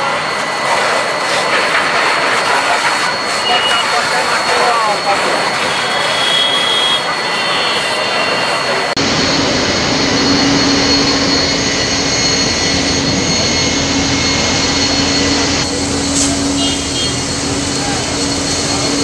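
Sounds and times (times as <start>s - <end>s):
fire hoses spraying water: 0.0s - 19.0s.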